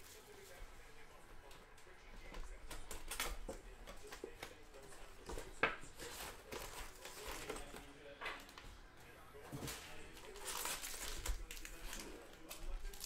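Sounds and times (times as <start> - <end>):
foil packs crinkling: 10.1 - 13.0.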